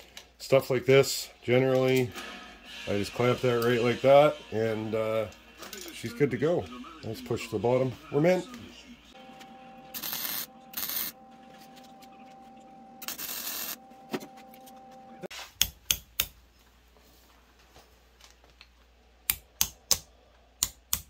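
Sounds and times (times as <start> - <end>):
welding arc crackling: 9.9 - 11.2, 13.0 - 13.8.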